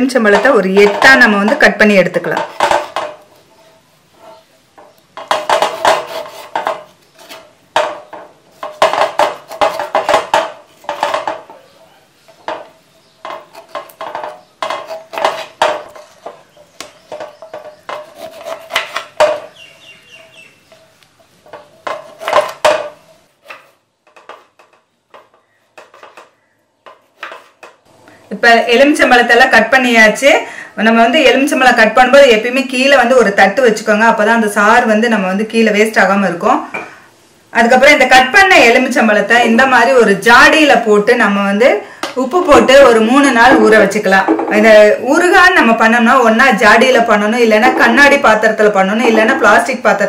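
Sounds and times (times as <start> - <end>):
knife chopping on wooden board: 4.8 - 11.4, 12.6 - 19.5, 21.6 - 26.3.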